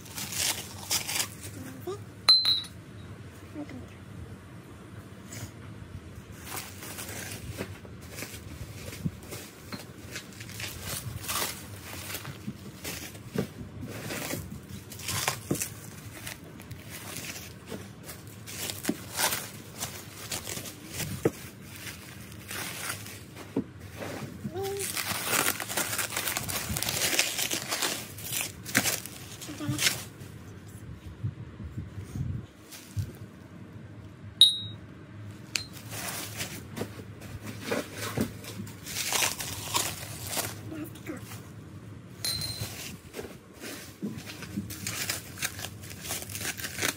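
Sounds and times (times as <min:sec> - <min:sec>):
bubble wrap crinkling: 0:00.0 - 0:01.8, 0:06.4 - 0:13.4, 0:14.0 - 0:23.5, 0:24.4 - 0:30.2, 0:38.4 - 0:41.4, 0:42.6 - 0:46.9
ceramic dishes clinking: 0:02.3 - 0:02.8, 0:42.3 - 0:42.8.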